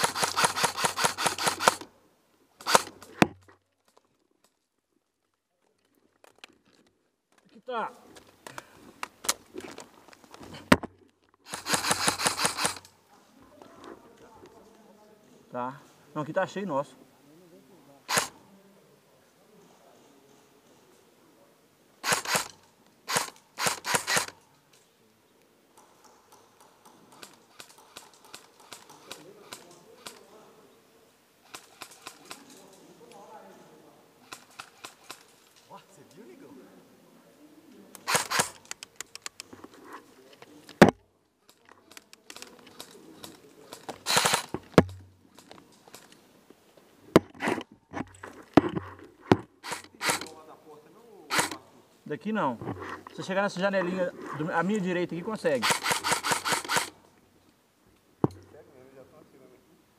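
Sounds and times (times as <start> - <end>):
airsoft gun shots: 0.0 - 1.9, 2.6 - 3.3, 11.5 - 12.8, 38.0 - 38.6, 44.0 - 45.0, 49.6 - 50.3, 51.3 - 51.6, 55.6 - 56.9
rifle handling clicks: 37.9 - 39.5, 41.5 - 46.2, 55.6 - 57.0.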